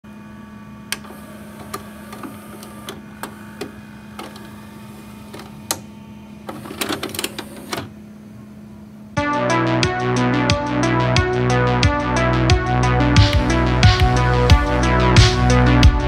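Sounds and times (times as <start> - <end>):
electrical hum: 0.1 - 9.2.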